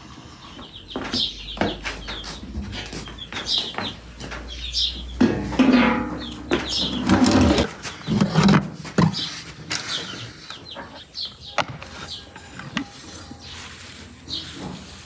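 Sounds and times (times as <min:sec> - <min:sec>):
birds chirping: 0:00.0 - 0:15.0
metal pan scraping on brick: 0:05.3 - 0:08.7.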